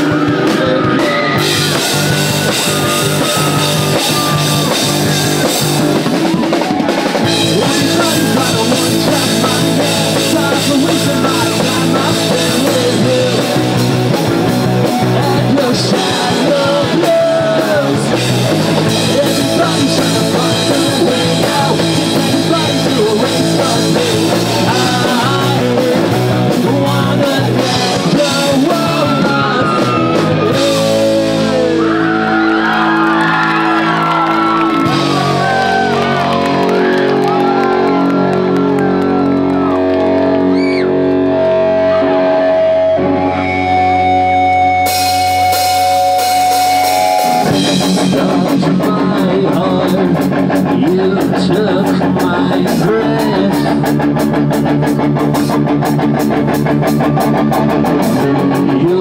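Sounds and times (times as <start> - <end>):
rock band playing: 0.0 - 59.0.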